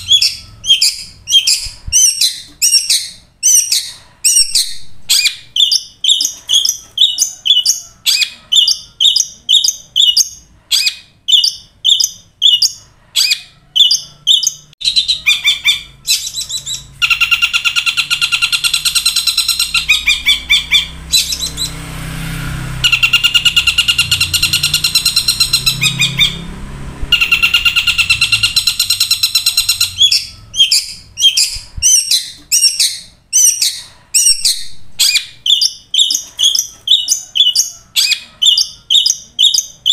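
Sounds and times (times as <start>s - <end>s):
shrike singing: 22.8s - 39.9s.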